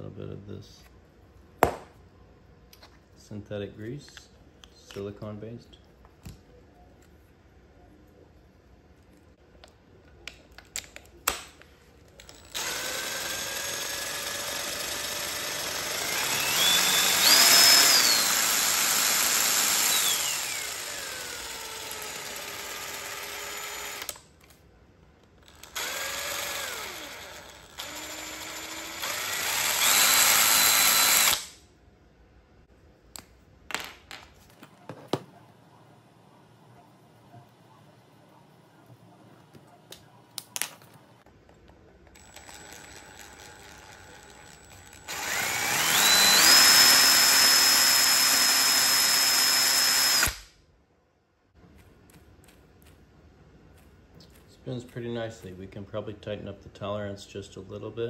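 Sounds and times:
cordless drill motor whine: 12.3s - 24.2s, 25.5s - 31.5s, 42.2s - 50.4s.

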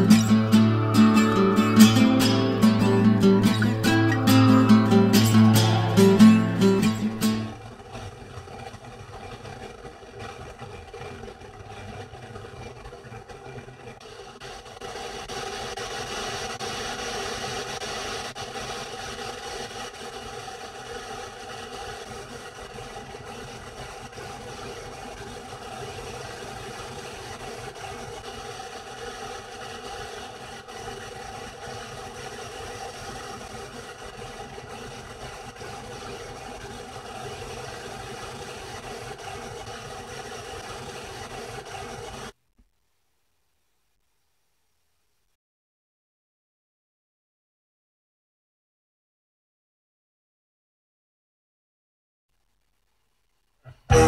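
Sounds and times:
car cabin hum and hiss: 14.0s - 42.4s.

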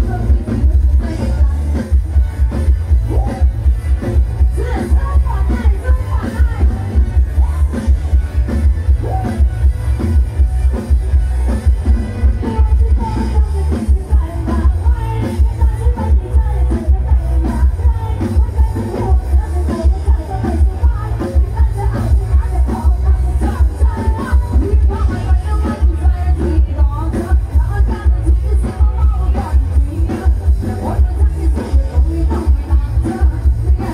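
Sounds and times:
women singing into microphones: 0.0s - 1.7s, 4.6s - 7.6s, 12.5s - 33.9s
heavy pulsing bass beat: 0.0s - 33.9s
live band playing dance music: 0.0s - 33.9s.

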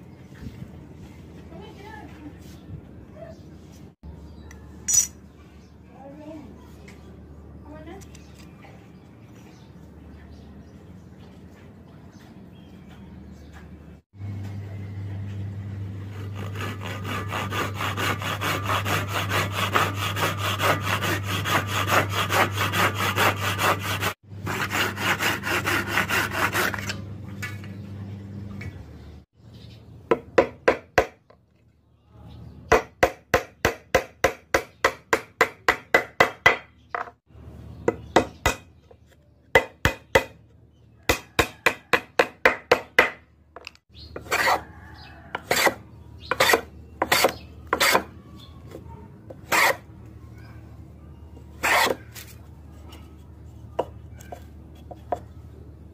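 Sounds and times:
handsaw cutting wood: 16.0s - 27.0s, 44.2s - 44.7s, 45.4s - 48.1s, 49.4s - 49.9s, 51.6s - 52.0s.

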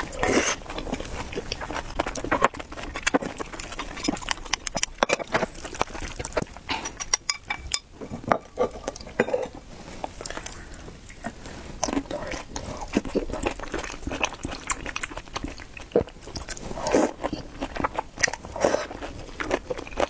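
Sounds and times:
chewing and mouth sounds: 0.0s - 7.8s, 10.0s - 20.0s
utensils clinking against bowl: 3.7s - 5.5s, 6.7s - 9.6s.

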